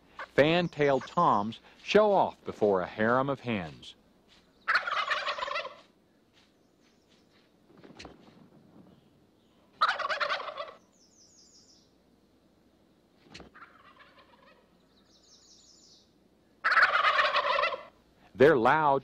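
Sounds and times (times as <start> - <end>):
turkeys gobbling: 0.1 - 1.3, 4.6 - 5.9, 9.7 - 10.9, 13.3 - 14.8, 16.6 - 18.0.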